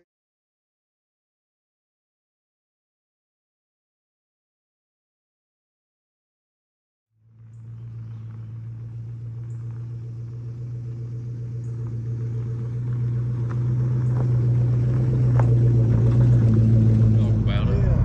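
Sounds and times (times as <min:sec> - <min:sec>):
pickup truck engine humming: 0:07.2 - 0:18.0.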